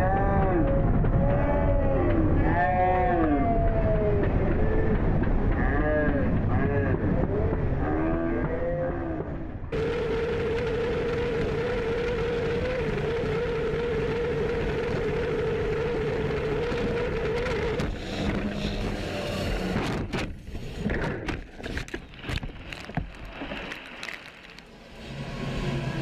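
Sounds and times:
boat engine at full speed: 9.6s - 26.0s.

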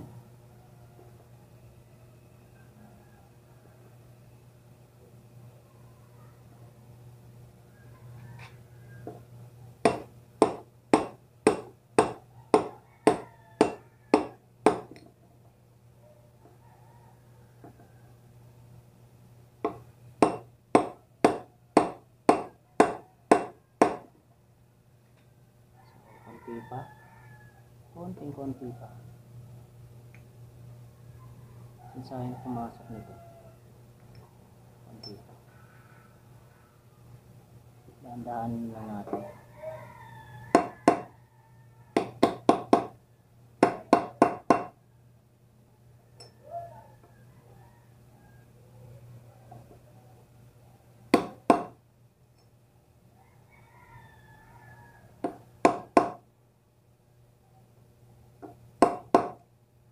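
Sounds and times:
hammer tapping metal drift: 9.8s - 15.0s, 19.7s - 24.1s.

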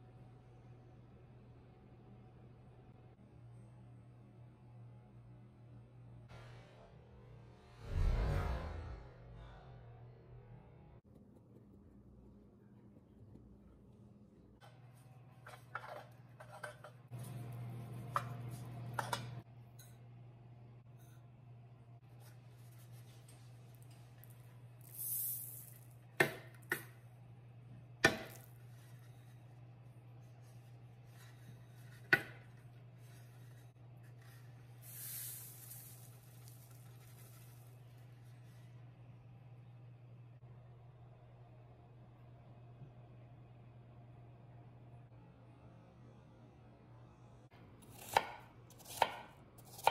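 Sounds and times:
low steady hum: 0.0s - 49.8s
sugar grains sliding onto paper: 24.8s - 25.9s, 33.0s - 38.5s.

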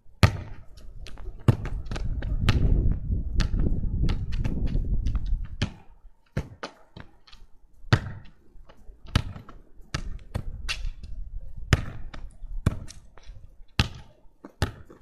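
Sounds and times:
football kicks thudding: 0.2s - 0.6s, 1.4s - 7.1s, 7.9s - 8.3s, 9.1s - 10.5s, 11.7s - 13.0s, 13.8s - 15.0s
ball hitting wall and bouncing: 0.2s - 8.4s, 9.1s - 11.0s, 11.7s - 13.0s, 13.8s - 15.0s.

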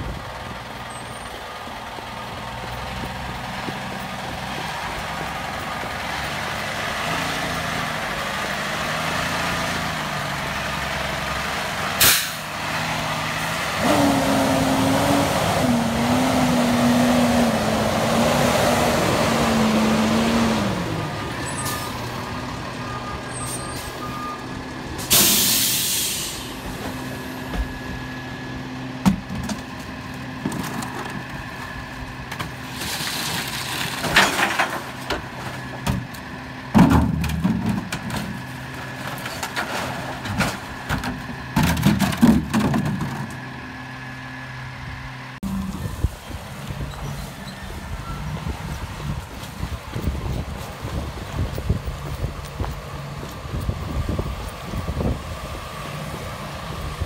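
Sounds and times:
truck diesel engine passing: 0.0s - 29.0s, 43.4s - 57.0s
air brake hissing: 12.0s - 12.5s, 25.0s - 26.6s.

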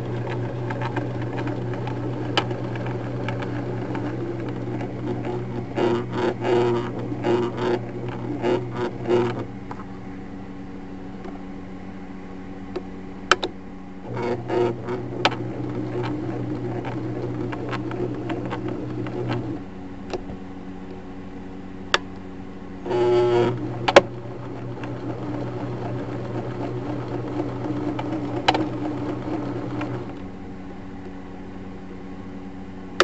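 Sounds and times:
sewing machine humming and chattering: 0.0s - 9.5s, 14.0s - 19.7s, 22.8s - 30.3s.

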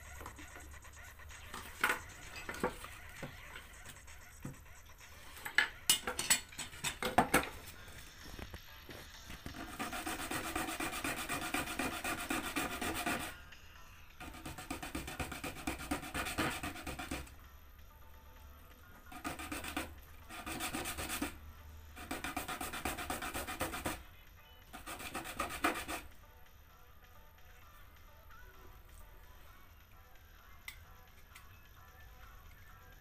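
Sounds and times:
plastic rubbing on sandpaper: 0.0s - 5.3s, 9.4s - 13.3s, 14.2s - 17.3s, 19.1s - 21.4s, 22.0s - 24.0s, 24.8s - 26.0s.

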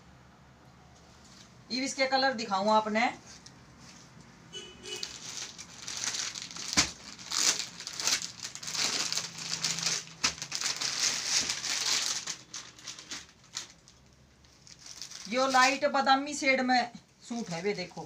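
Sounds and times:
plastic crinkling: 4.9s - 16.0s.

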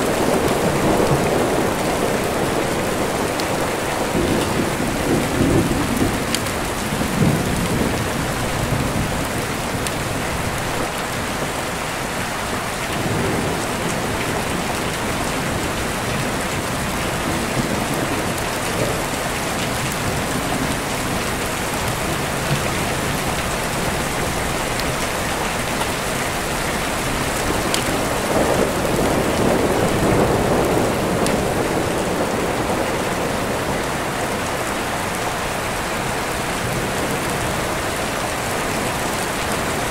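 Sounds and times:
rolling thunder: 0.0s - 10.9s, 25.3s - 34.1s
steady rain: 0.0s - 39.9s.

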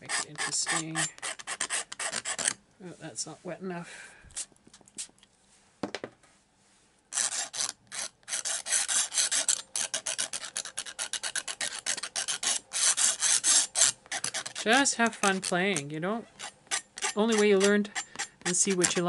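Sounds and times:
brush scrubbing paper: 7.2s - 15.8s, 16.4s - 19.0s.

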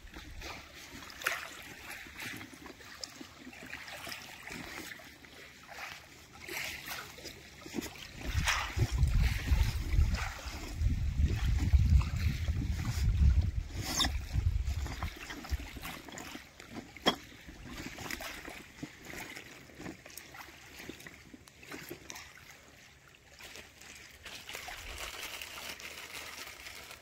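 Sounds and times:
wavelets lapping on gravel beach: 0.0s - 27.0s
wind rumble on microphone: 8.1s - 15.9s.

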